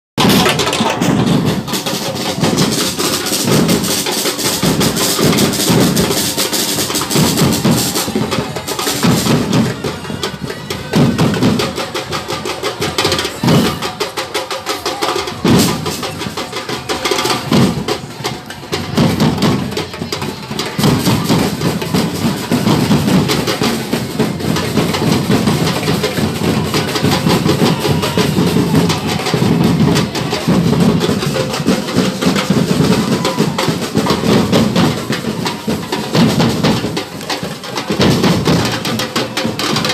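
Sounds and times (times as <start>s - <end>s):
bass drums beating: 0.2s - 10.1s, 20.8s - 39.9s.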